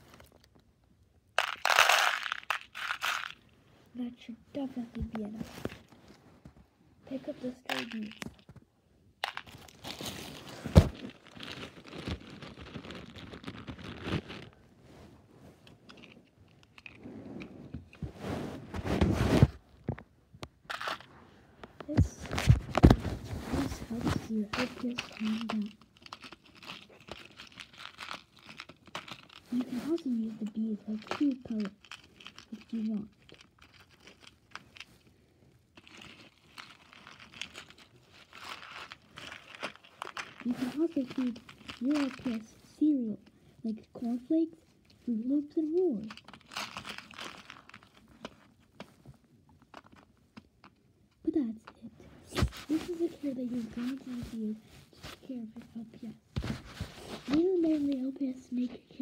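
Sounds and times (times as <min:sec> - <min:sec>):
plastic beads shifting: 0:01.3 - 0:03.5, 0:07.1 - 0:08.6, 0:09.2 - 0:14.7, 0:15.5 - 0:17.2, 0:20.7 - 0:21.2, 0:21.8 - 0:43.2, 0:44.9 - 0:48.9
plastic bag crinkling: 0:01.4 - 0:03.5, 0:07.2 - 0:08.6, 0:09.2 - 0:17.0, 0:22.1 - 0:43.2, 0:45.4 - 0:50.9.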